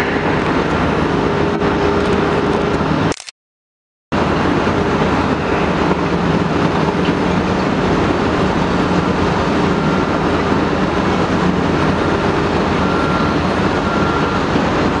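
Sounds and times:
excavator diesel engine rumble: 4.2 - 15.0.

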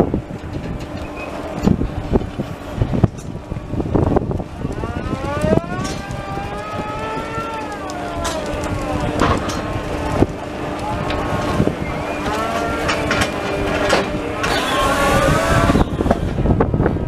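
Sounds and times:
loader engine humming: 0.0 - 17.0
long pitched rising tone: 1.2 - 16.7.

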